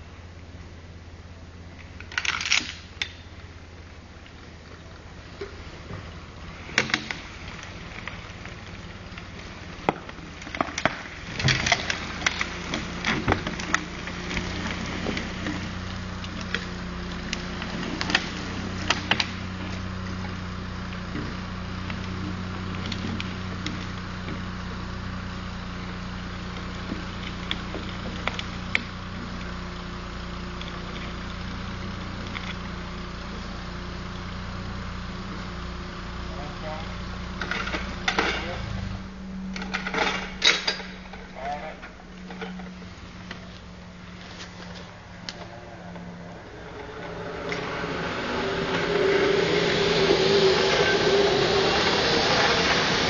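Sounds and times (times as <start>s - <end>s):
cable crane engine hum: 0.0s - 53.0s
wood and branches snapping: 1.8s - 3.2s, 6.7s - 20.4s.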